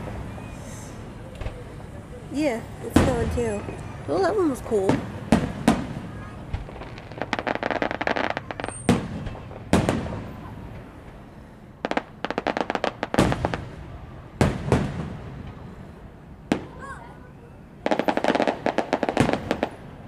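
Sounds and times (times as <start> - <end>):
firework booms: 4.7 - 10.9, 11.8 - 15.6, 17.9 - 19.9
rapid crackling pops: 4.9 - 10.2.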